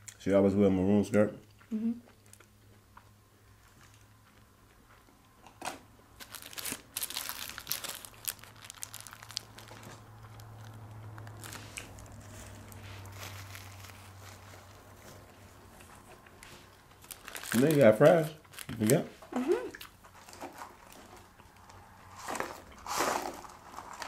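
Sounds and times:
paper wrappers crinkling and tearing: 0:06.2 - 0:15.3, 0:16.4 - 0:19.1, 0:20.1 - 0:21.3, 0:22.2 - 0:24.0.

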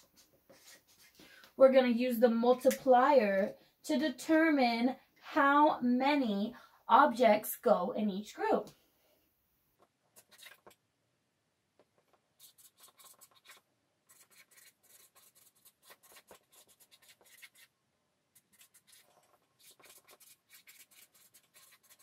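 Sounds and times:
marker scratching on paper: 0:10.2 - 0:10.8, 0:12.0 - 0:17.7, 0:18.4 - 0:22.0.

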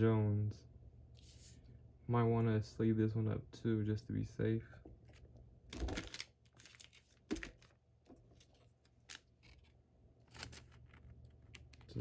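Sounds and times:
card rustling in plastic sleeve: 0:05.0 - 0:12.0.

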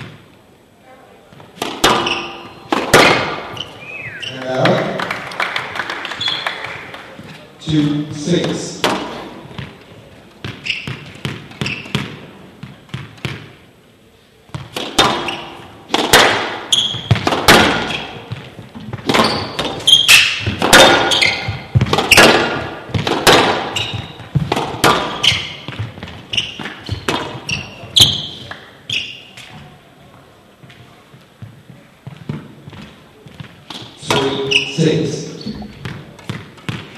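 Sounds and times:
ball bouncing: 0:01.3 - 0:05.1, 0:07.2 - 0:13.6, 0:14.5 - 0:28.7, 0:31.4 - 0:34.6, 0:35.4 - 0:36.9
squash ball cracking off rackets: 0:01.4 - 0:05.1, 0:08.4 - 0:13.6, 0:14.5 - 0:28.7
shoe squeaks on court floor: 0:01.8 - 0:04.5, 0:06.1 - 0:06.6, 0:10.4 - 0:12.2, 0:14.5 - 0:15.7, 0:16.6 - 0:17.2, 0:17.8 - 0:18.4, 0:19.1 - 0:22.7, 0:23.5 - 0:29.7, 0:33.7 - 0:36.9.

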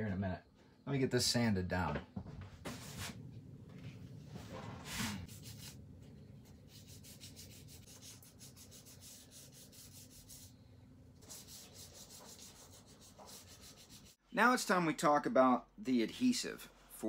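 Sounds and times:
hand sanding wood: 0:04.9 - 0:05.8, 0:06.5 - 0:10.5, 0:11.2 - 0:14.2.

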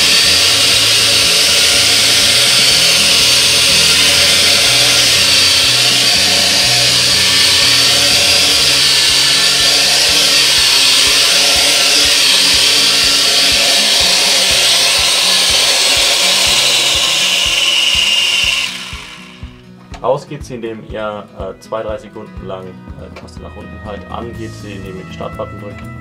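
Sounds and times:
drone propellers whining: 0:00.0 - 0:19.8
music with a beat: 0:00.0 - 0:26.0.

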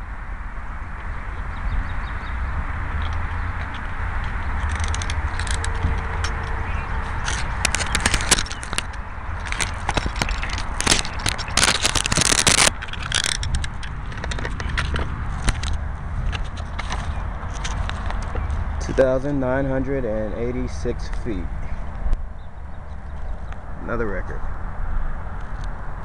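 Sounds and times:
low wind rumble: 0:00.0 - 0:26.0
microphone handling noise: 0:01.7 - 0:22.4.

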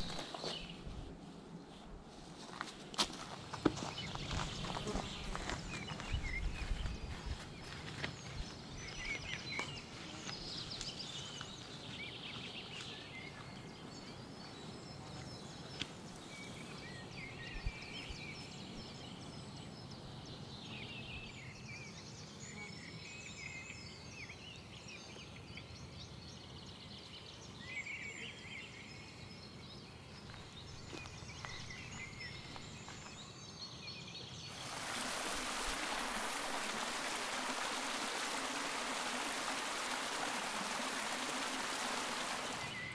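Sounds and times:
water rushing over rocks: 0:34.5 - 0:42.9.

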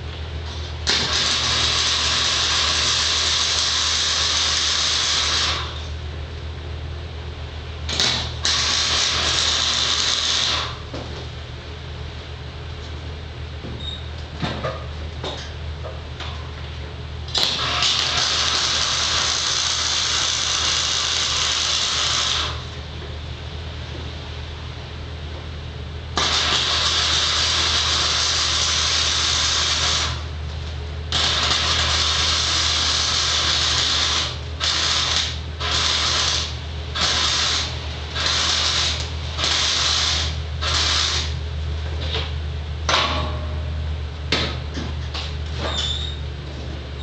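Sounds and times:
welding arc crackling and hissing: 0:00.0 - 0:06.0, 0:07.9 - 0:10.9, 0:17.3 - 0:22.8, 0:26.2 - 0:41.4
steady low hum: 0:00.0 - 0:47.0.

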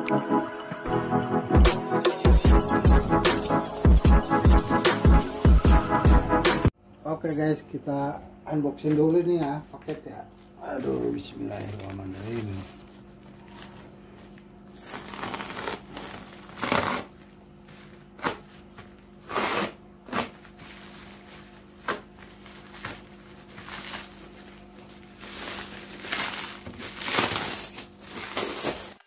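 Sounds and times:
plastic packaging crinkling and tearing: 0:10.7 - 0:29.0.

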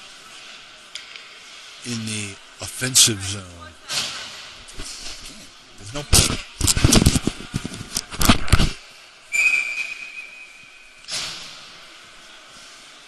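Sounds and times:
shrill whistle blown: 0:09.3 - 0:10.8.

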